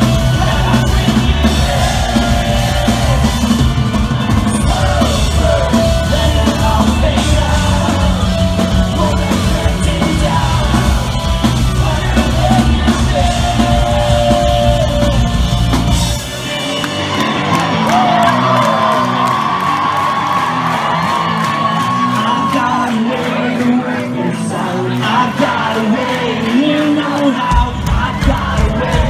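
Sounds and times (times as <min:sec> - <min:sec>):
person singing: 0:00.0 - 0:15.9, 0:21.8 - 0:29.0
crowd yelling: 0:00.0 - 0:29.0
live rock band playing: 0:00.0 - 0:29.0.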